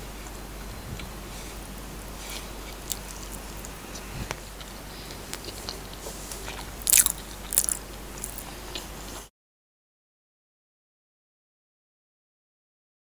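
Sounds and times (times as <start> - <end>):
person chewing: 1.0 - 9.3.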